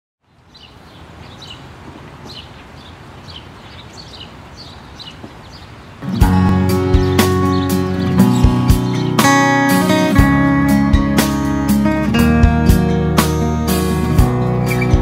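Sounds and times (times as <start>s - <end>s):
bird chirping: 0.2s - 10.2s, 14.4s - 15.0s
outdoor ambience hiss: 0.2s - 15.0s
acoustic guitar plucked notes: 6.0s - 15.0s.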